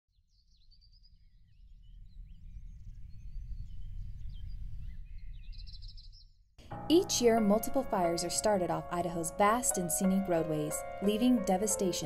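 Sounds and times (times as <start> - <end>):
small birds chirping: 0.3 - 6.4.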